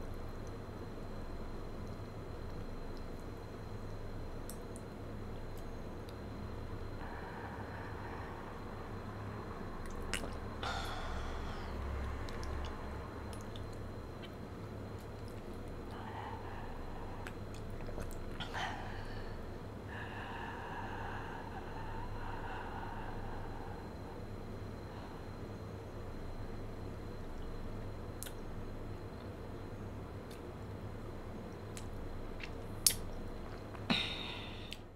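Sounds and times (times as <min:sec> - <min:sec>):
low hum: 0:00.0 - 0:34.9
wet mouth click: 0:09.8 - 0:10.4, 0:28.2 - 0:28.4, 0:31.7 - 0:33.8
wet mouth chewing sounds: 0:09.8 - 0:10.5, 0:17.2 - 0:18.6.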